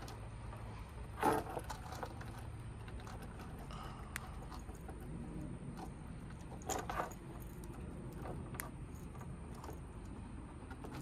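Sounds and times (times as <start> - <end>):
metal rattle: 0.0 - 11.0
small metal clicks and clinks: 5.8 - 11.0.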